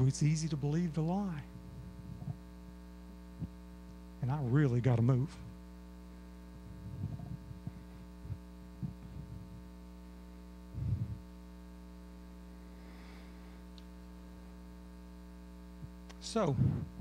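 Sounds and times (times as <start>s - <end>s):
electrical mains hum: 0.0s - 17.0s
soft low thumps: 1.5s - 3.8s, 6.2s - 11.6s.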